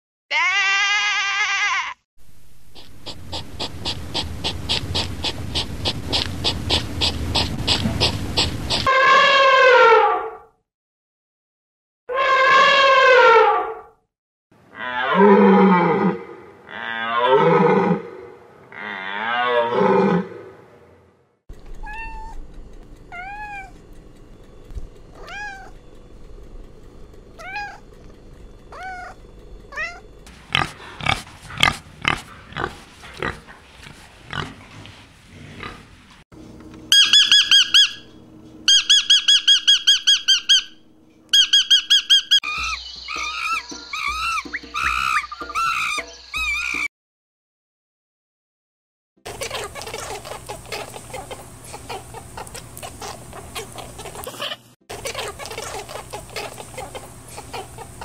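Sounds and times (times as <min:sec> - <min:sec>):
cat mewing: 0:00.3 - 0:02.0, 0:21.8 - 0:22.4, 0:23.1 - 0:23.8, 0:25.1 - 0:25.8, 0:27.4 - 0:28.0, 0:28.7 - 0:30.1
lovebird chirping rapidly: 0:02.7 - 0:08.9, 0:36.9 - 0:38.1, 0:38.7 - 0:46.8
deer calling: 0:36.9 - 0:38.1, 0:38.7 - 0:46.9.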